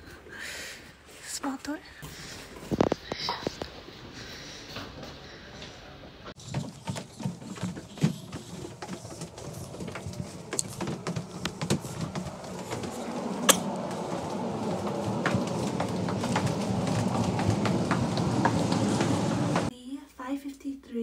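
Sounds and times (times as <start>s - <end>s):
footsteps on wooden floors: 6.4s - 19.7s.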